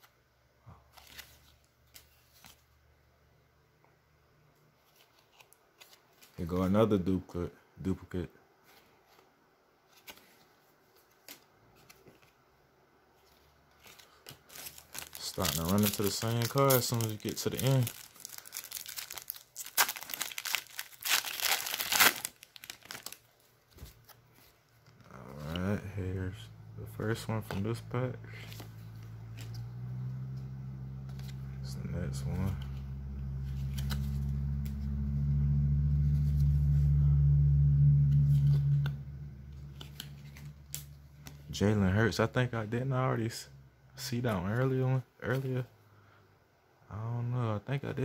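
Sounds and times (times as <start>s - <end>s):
low electrical hum: 0.0s - 48.0s
foil wrapper crinkling: 13.8s - 24.1s.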